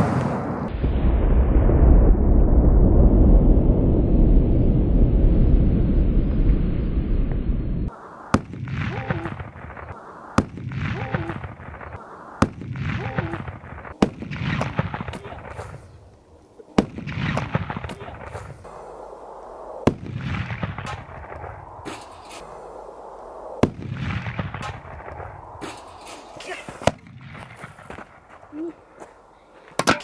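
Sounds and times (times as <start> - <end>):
firecrackers banging: 7.9 - 16.0, 16.6 - 18.9, 19.9 - 22.6, 23.6 - 28.5.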